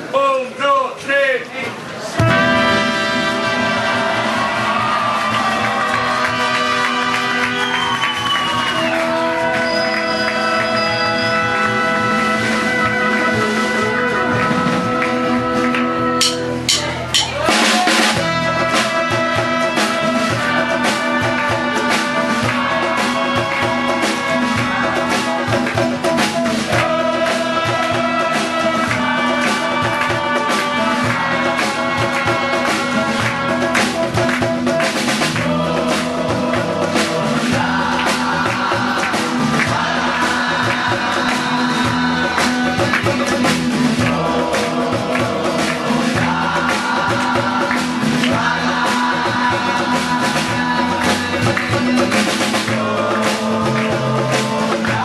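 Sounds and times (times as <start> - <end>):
live band playing: 0.0 - 55.0
sharp drum hits: 2.2 - 5.1, 16.2 - 20.0
voices singing: 8.4 - 55.0.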